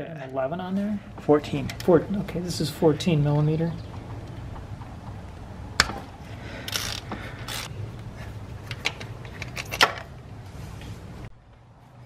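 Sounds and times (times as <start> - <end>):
ratchet wrench clicking: 6.7 - 7.7.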